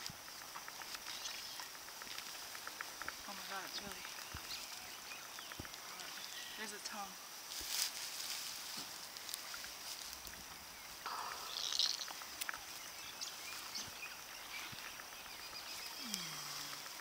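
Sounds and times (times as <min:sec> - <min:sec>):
small rustles and clicks: 0:00.0 - 0:11.0
steady high hum: 0:11.0 - 0:14.4.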